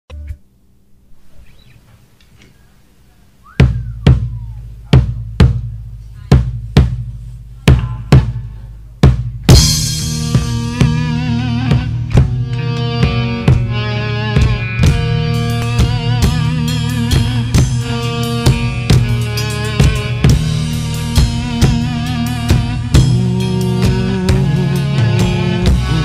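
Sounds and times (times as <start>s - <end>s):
heavy low drum hits: 3.6s - 13.8s, 14.4s - 26.0s
rock band with electric guitars: 6.4s - 26.0s.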